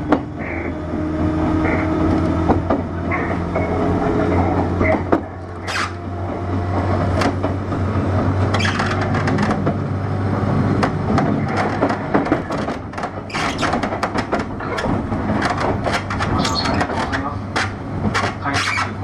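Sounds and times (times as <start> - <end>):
train cabin low hum: 0.0 - 19.0
clicks and knocks: 10.8 - 19.0.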